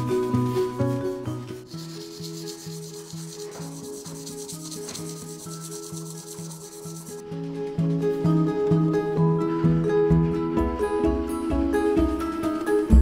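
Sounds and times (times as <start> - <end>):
pencil scratching on paper: 1.6 - 7.2.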